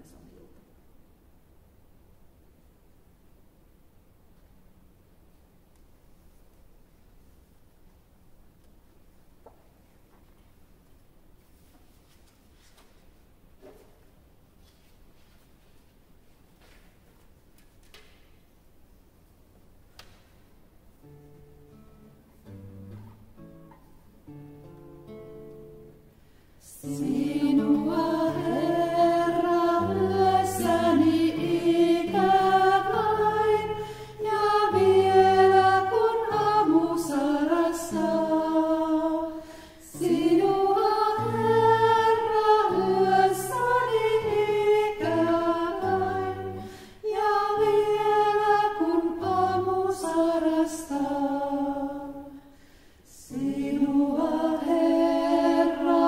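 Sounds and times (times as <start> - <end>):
acoustic guitar: 19.7 - 56.0
women singing in harmony: 26.6 - 52.4, 53.1 - 56.0.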